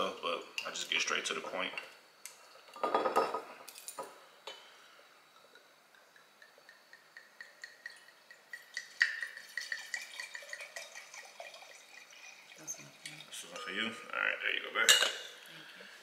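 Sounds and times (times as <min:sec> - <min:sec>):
wine pouring into a glass: 0:05.2 - 0:14.0.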